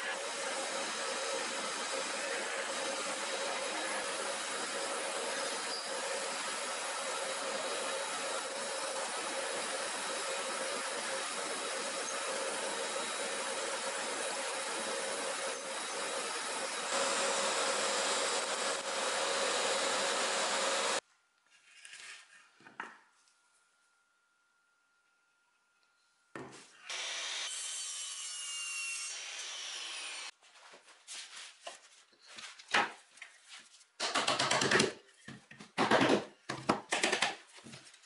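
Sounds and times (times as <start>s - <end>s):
mortiser machine boring wood: 0.0s - 21.0s
shop vacuum running: 0.0s - 21.0s.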